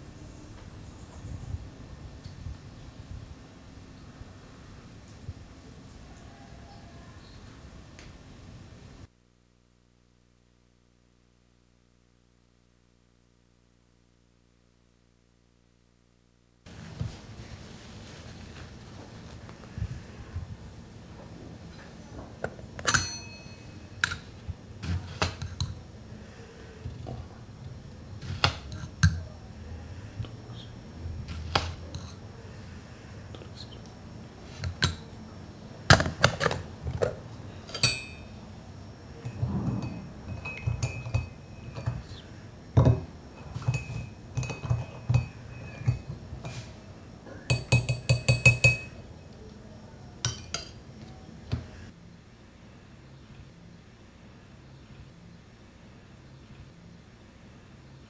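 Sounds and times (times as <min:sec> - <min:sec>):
spoon stirring in cup: 0:31.3 - 0:32.2, 0:36.1 - 0:38.4, 0:39.2 - 0:46.8, 0:47.5 - 0:49.0, 0:50.2 - 0:50.8
teaspoon clinking on cup: 0:37.7 - 0:38.3, 0:40.3 - 0:42.0, 0:43.4 - 0:46.6, 0:47.5 - 0:49.0.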